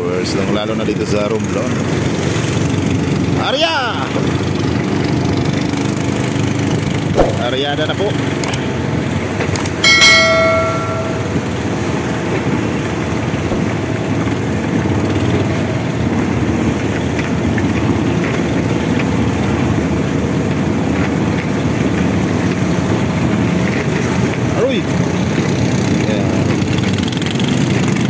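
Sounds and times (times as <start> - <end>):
boat engine running: 0.2 - 28.0
waves and spray along hull: 1.7 - 7.6.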